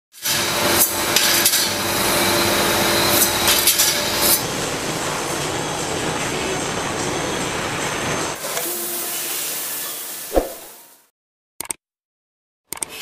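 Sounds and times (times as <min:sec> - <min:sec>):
steady background noise: 0:04.0 - 0:08.4.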